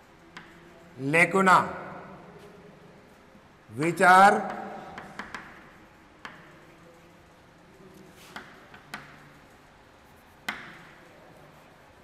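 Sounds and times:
chalk tapping on a chalkboard: 0:00.0 - 0:00.9, 0:04.4 - 0:12.0
faint chalk scratching: 0:00.0 - 0:01.0, 0:04.8 - 0:12.0.

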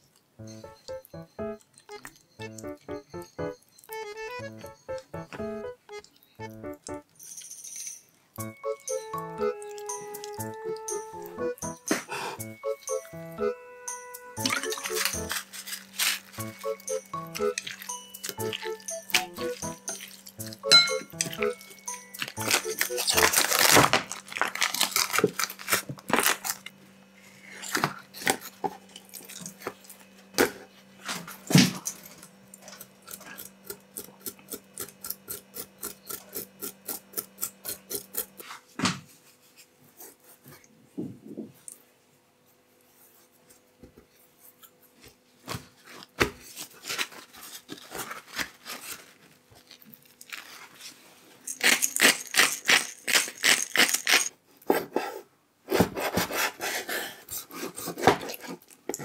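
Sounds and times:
plastic packaging crinkling and tearing: 0:14.4 - 0:16.6, 0:19.5 - 0:20.4, 0:21.6 - 0:26.8, 0:45.7 - 0:54.3
pepper grinder rasping: 0:14.4 - 0:26.7, 0:31.9 - 0:38.5, 0:51.4 - 0:54.4.

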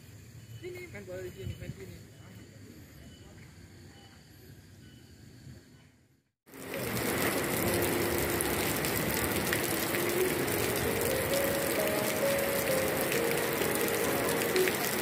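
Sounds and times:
heavy rain on paving: 0:06.5 - 0:15.0.

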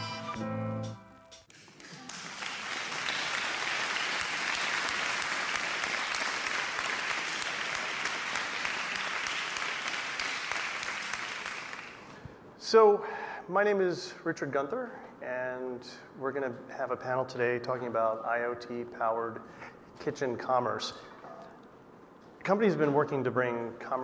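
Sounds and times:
audience applauding: 0:01.5 - 0:12.1.

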